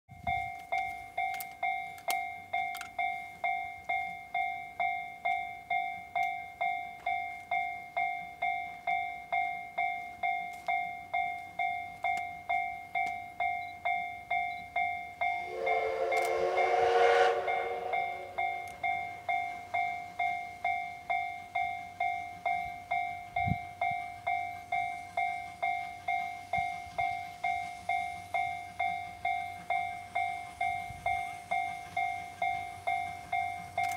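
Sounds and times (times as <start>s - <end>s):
level-crossing bell ringing: 0.1s - 33.9s
steam locomotive whistle: 15.4s - 20.2s.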